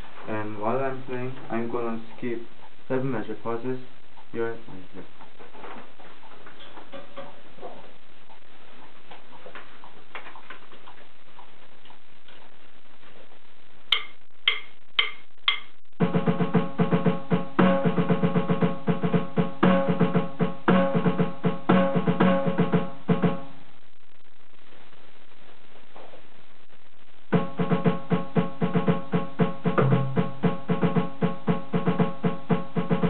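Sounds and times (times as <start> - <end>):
count-in clicks: 13.9 - 15.8
electronic snare drum strokes: 13.9 - 23.5, 27.3 - 33.0
keyboard backing music: 16.0 - 23.5, 27.4 - 33.0.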